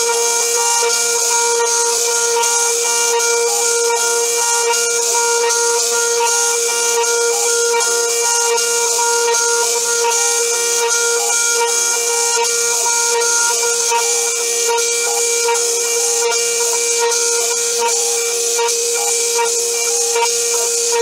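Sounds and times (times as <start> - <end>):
spindle whining: 0.0 - 21.0.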